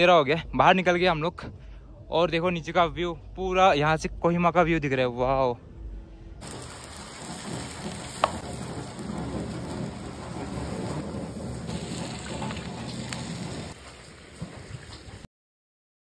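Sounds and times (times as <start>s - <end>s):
potatoes sizzling in a pan: 6.4s - 13.8s.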